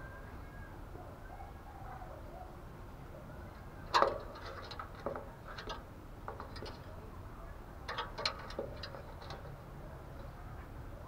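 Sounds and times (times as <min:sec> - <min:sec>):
bird pecking in wire cage: 0:03.9 - 0:07.0, 0:07.8 - 0:09.6.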